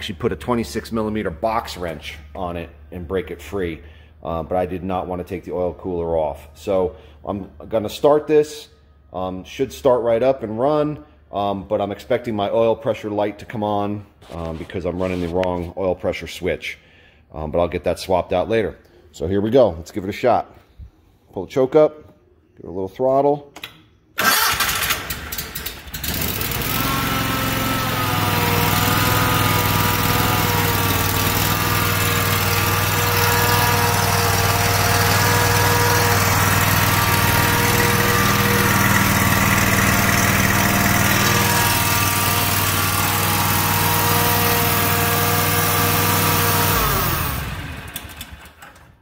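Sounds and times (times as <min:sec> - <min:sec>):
mower engine running: 0:24.2 - 0:48.8.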